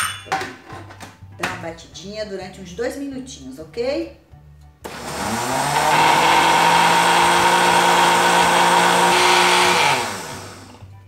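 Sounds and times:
blender motor running: 0:04.8 - 0:10.8.

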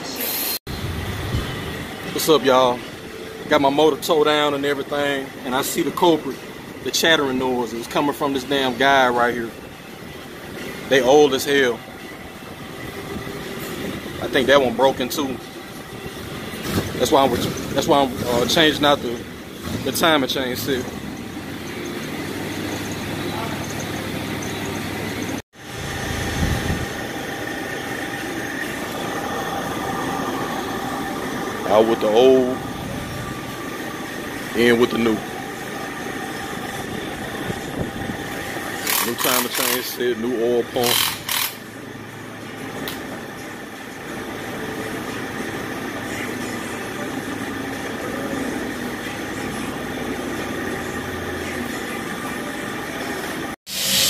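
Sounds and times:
engine idling drone: 0:00.7 - 0:54.0
floor fan whirring: 0:25.6 - 0:54.0.

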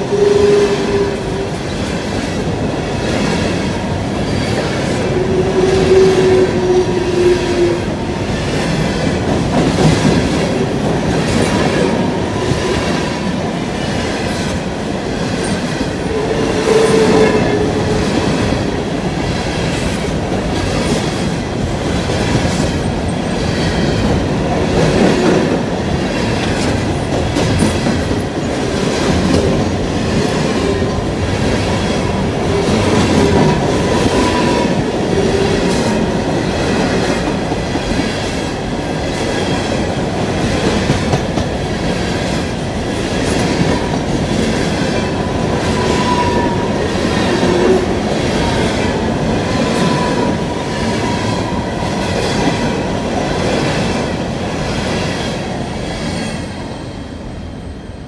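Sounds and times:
train rumble: 0:00.0 - 0:58.0
train wheels clicking over rail joints: 0:16.6 - 0:46.6.

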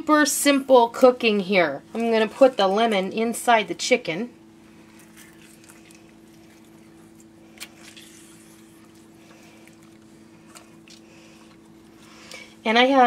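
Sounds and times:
steady low hum: 0:00.0 - 0:13.0
wet squeezing of lemon: 0:04.7 - 0:12.6.

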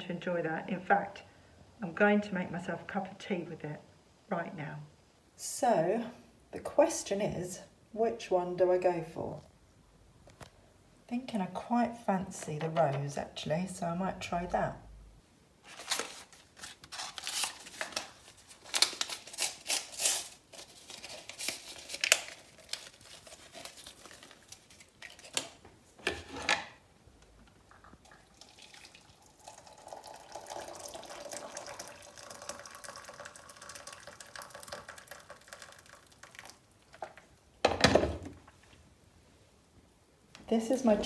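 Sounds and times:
paper sachet rustling and tearing: 0:15.6 - 0:25.6
water pouring into cup: 0:27.7 - 0:37.0.

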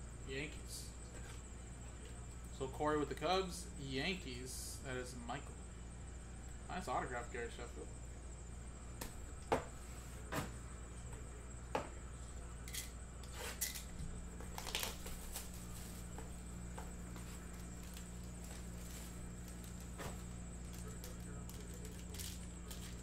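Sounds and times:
low steady hum: 0:00.0 - 0:23.0
plastic wrapper rustling: 0:14.5 - 0:15.9.

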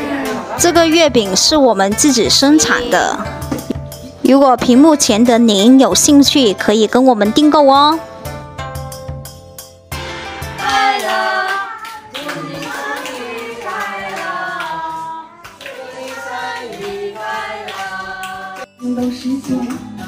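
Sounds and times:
background music: 0:00.0 - 0:20.0
adults and children singing: 0:10.6 - 0:20.0
people clapping in time: 0:10.6 - 0:20.0.

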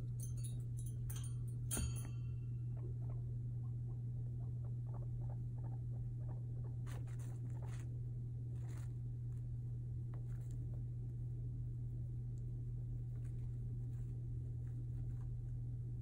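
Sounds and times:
guinea pig pattering: 0:00.0 - 0:16.0
steady low hum: 0:00.0 - 0:16.0
scratchy rustles: 0:06.8 - 0:07.9, 0:08.5 - 0:09.5, 0:10.1 - 0:11.2, 0:12.9 - 0:15.7.

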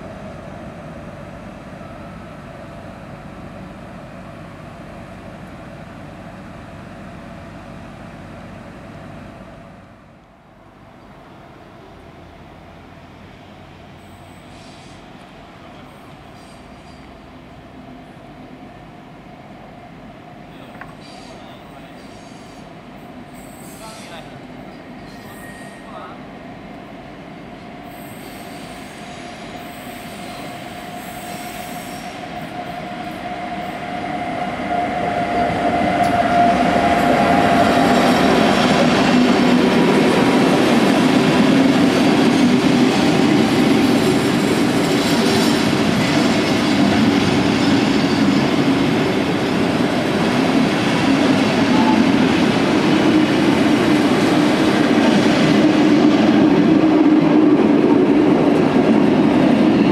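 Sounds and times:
electric locomotive whine: 0:00.0 - 0:59.9
train wheels rumbling on rails: 0:19.7 - 0:59.9.

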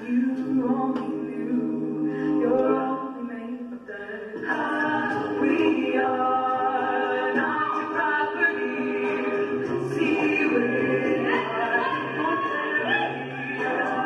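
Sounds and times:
a cappella group singing harmony: 0:00.0 - 0:14.0.

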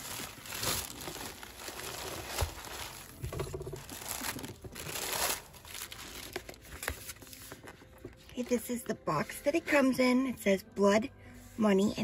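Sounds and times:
packaging crinkling: 0:00.0 - 0:08.4.

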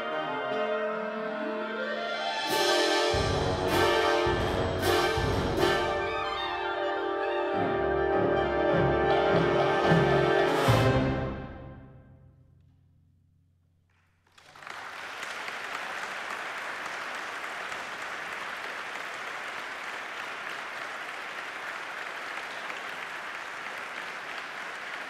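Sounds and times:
audience applause: 0:14.1 - 0:25.0.

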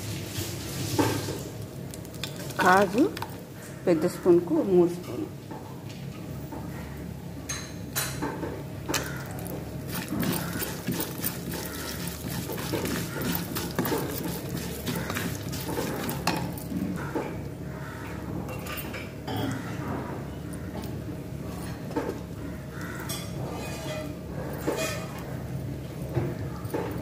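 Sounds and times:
spatula scraping a pan: 0:09.8 - 0:16.6.

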